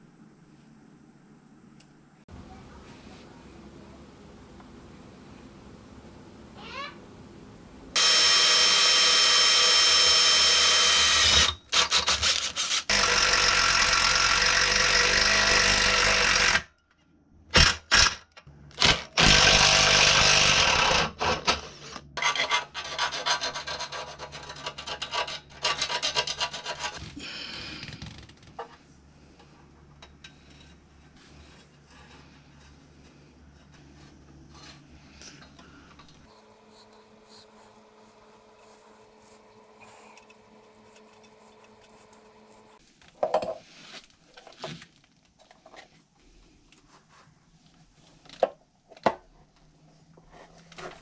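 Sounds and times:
quiet handling sounds: 1.7 - 5.5
impact driver running: 8.0 - 12.1, 12.9 - 16.6, 18.8 - 21.3.

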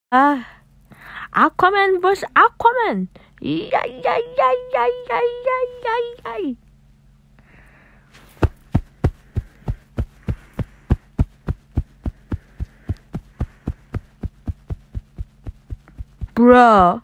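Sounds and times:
faint steady hum: 0.1 - 17.0
rapid thumps: 8.2 - 17.0.

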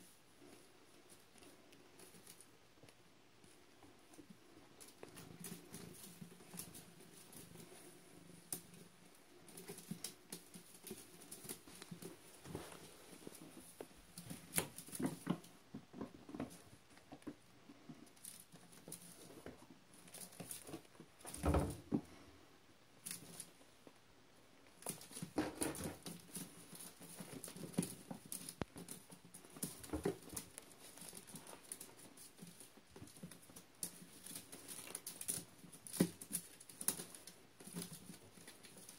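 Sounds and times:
claws scratching on wicker: 24.8 - 38.9.

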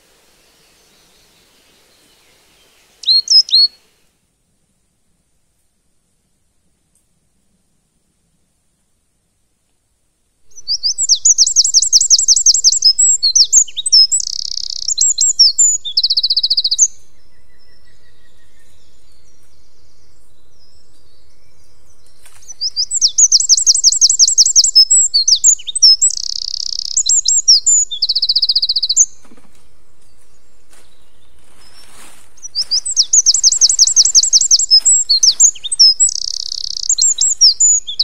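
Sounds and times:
songbird trilling: 2.0 - 3.8, 10.5 - 38.0.

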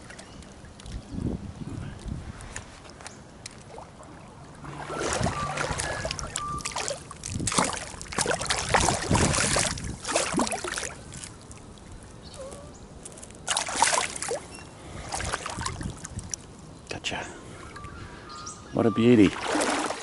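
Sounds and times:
fish thrashing and splashing: 3.5 - 11.7, 13.2 - 14.5, 19.4 - 20.0.

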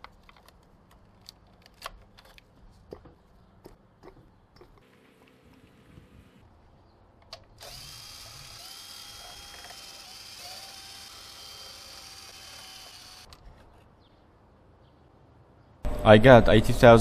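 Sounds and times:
drill click: 7.3 - 13.4
cordless drill spinning: 7.6 - 13.4.

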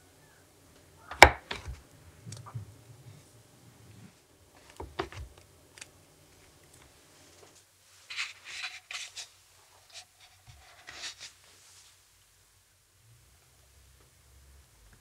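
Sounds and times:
scraping on wooden cutting board: 8.1 - 11.4.

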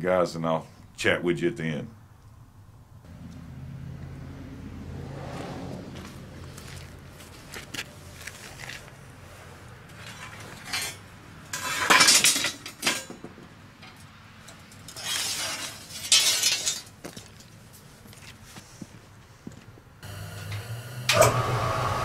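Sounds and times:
steel bars clinking and scraping: 9.9 - 17.5.

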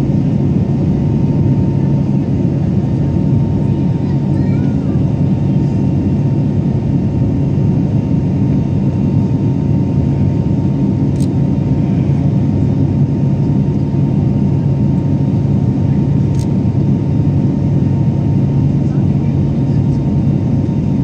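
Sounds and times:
airliner cabin engine drone: 0.0 - 21.0.

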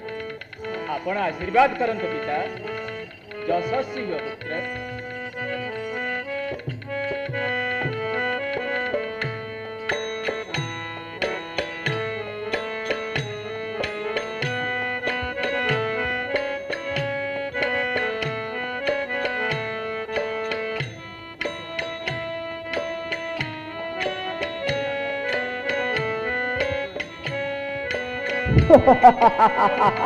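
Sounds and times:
melodic instrument held notes: 0.0 - 30.0
hand drum beat: 26.2 - 30.0.

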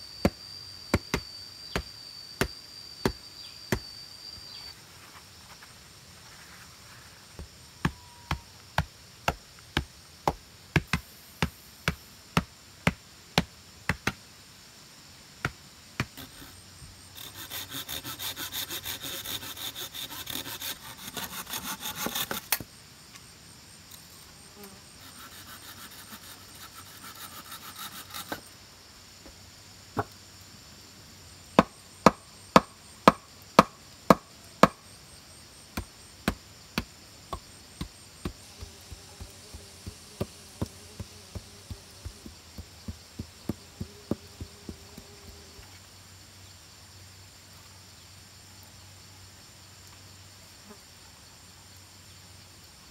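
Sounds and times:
wooden stakes hammered into ground: 0.2 - 3.9, 7.4 - 14.2, 31.6 - 34.8, 35.7 - 45.4
hand saw rasping through wood: 17.2 - 22.6, 25.0 - 28.4.

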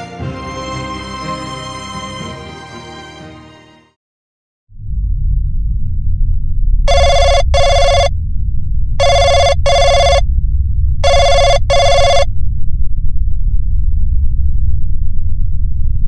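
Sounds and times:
low rumbling drone: 4.7 - 16.0
payphone double ring: 6.9 - 8.1, 9.0 - 10.2, 11.0 - 12.3.

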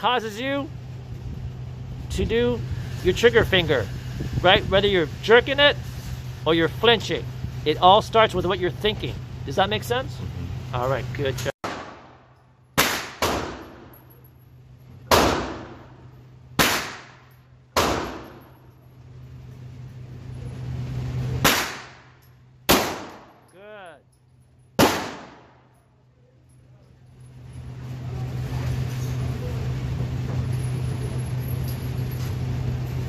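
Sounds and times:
steady low hum: 0.0 - 33.0
pistol shots echoing: 12.8 - 13.8, 15.1 - 15.8, 16.6 - 17.2, 17.8 - 18.4, 21.4 - 22.1, 22.7 - 23.4, 24.8 - 25.6.

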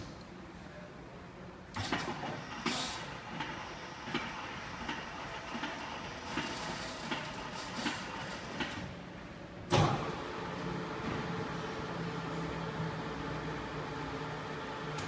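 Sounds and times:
lathe whirring: 9.8 - 15.0.

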